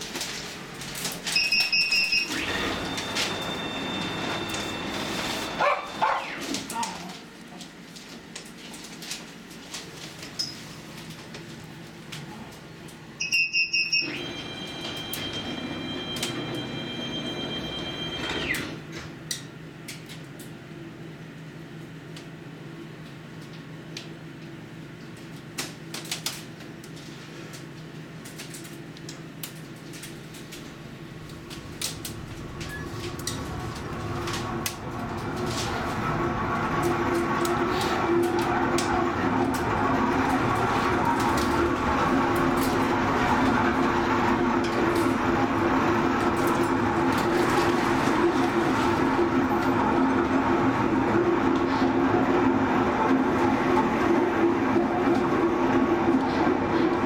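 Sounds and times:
steady high warning tone: 1.2 - 6.8, 13.2 - 18.8, 30.9 - 57.0
high warning beeps: 1.3 - 6.1, 13.2 - 18.6
funicular car rumbling on track: 31.0 - 57.0.

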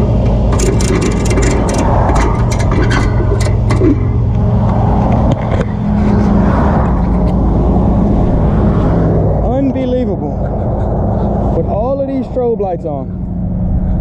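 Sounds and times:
truck engine idling: 0.0 - 8.3
vehicle passing by: 0.0 - 14.0.

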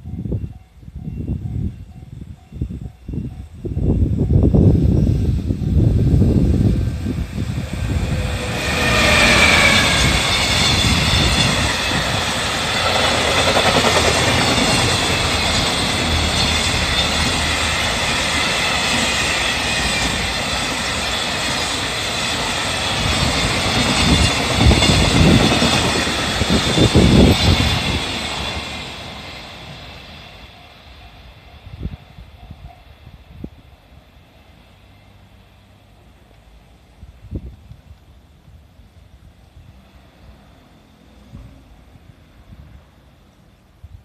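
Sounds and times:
train wagons running over rails: 0.0 - 33.0
electric locomotive whine: 0.0 - 44.0.

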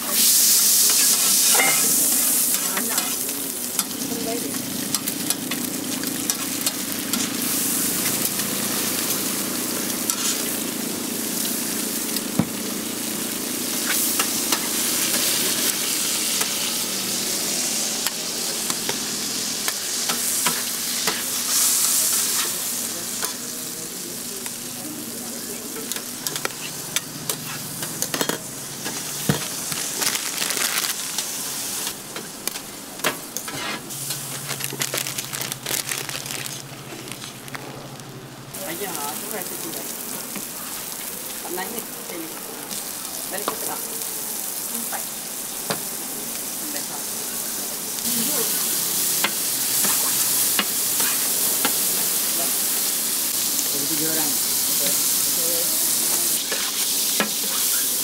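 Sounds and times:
food sizzling on a griddle: 0.0 - 58.0
metal spatula scraping griddle: 33.4 - 34.2, 56.4 - 57.8.

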